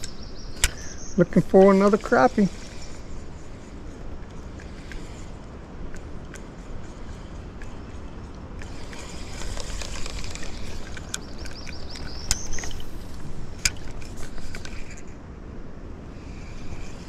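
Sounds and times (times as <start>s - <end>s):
fishing reel sharp clicks: 8.6s - 15.0s.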